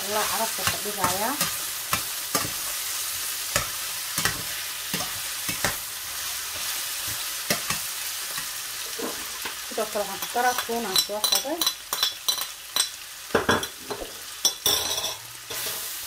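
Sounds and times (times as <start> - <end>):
chicken sizzling in a frying pan: 0.0 - 16.0
spatula scraping and tapping pan: 0.2 - 2.8, 3.5 - 5.8, 10.2 - 15.8.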